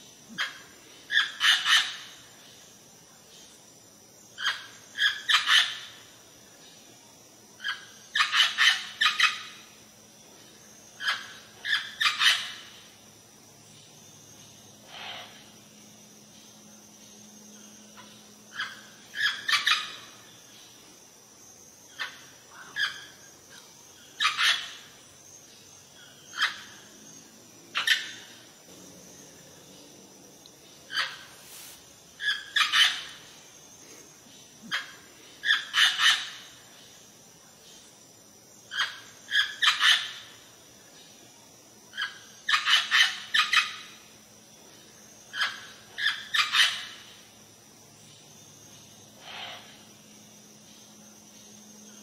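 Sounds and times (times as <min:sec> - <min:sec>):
parrot calls: 0:32.2 - 0:33.2.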